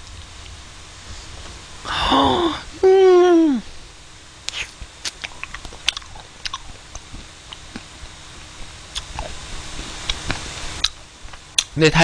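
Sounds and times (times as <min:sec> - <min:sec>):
wet mouth clicks and lip smacks: 0:04.5 - 0:07.9, 0:08.9 - 0:09.3, 0:10.0 - 0:11.0.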